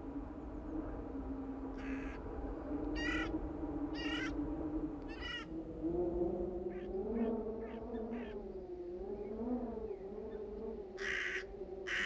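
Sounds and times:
crow cawing: 11.0s - 12.0s.

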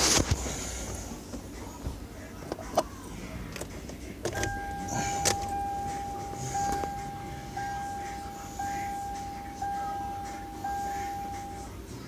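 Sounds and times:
dashboard warning chime: 4.3s - 12.0s.

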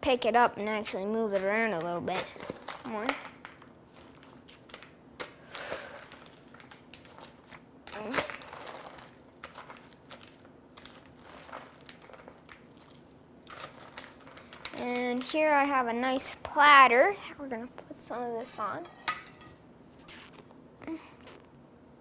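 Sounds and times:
salad leaves rustling and crunching: 5.9s - 15.6s.

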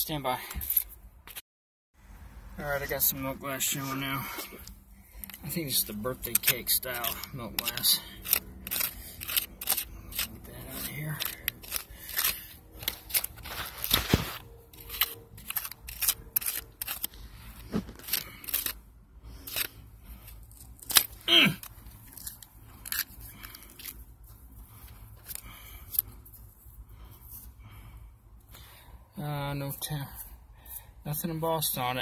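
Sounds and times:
metal tool scraping dirt: 3.1s - 24.1s.

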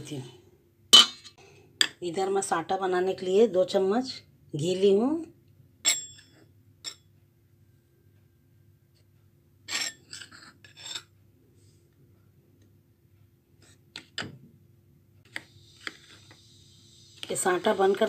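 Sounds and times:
steel spoon scraping bowls: 9.7s - 11.1s.

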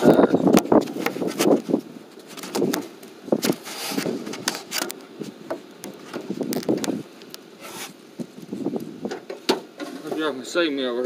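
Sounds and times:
hand tools clicking and scraping: 0.6s - 8.0s.

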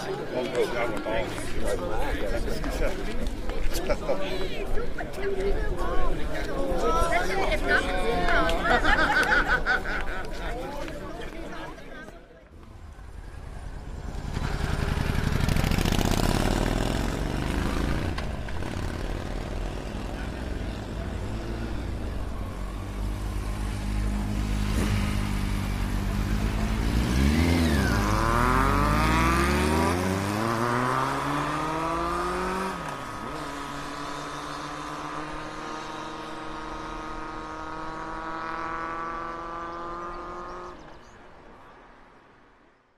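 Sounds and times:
motorcycle engine revving: 12.7s - 40.8s
motorcycle pulling away: 12.8s - 40.8s
steady engine note rising: 21.9s - 32.8s.

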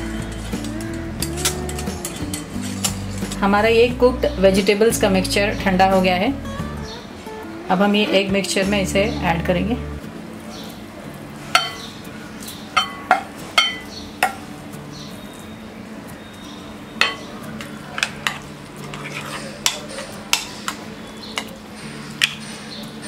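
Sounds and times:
spatula scraping a pan: 0.0s - 3.5s, 18.0s - 20.5s.

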